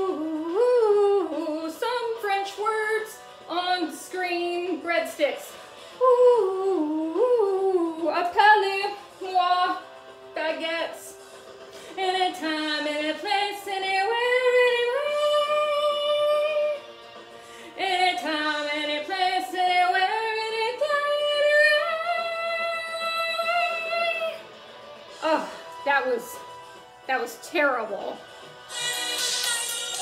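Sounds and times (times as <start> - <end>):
woman singing karaoke: 0.0 - 9.8, 10.4 - 11.2, 11.9 - 16.8, 17.8 - 24.4, 25.2 - 26.4.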